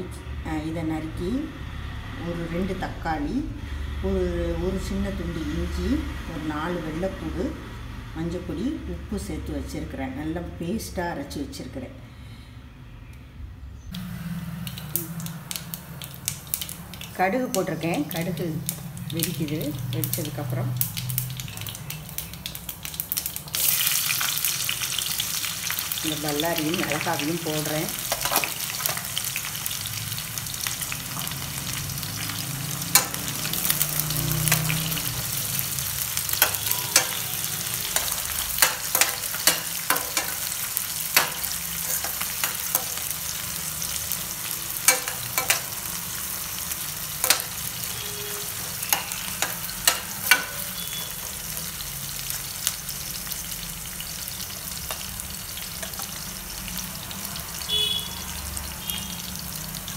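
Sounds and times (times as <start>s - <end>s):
onions sizzling in hot oil: 14.0s - 59.9s.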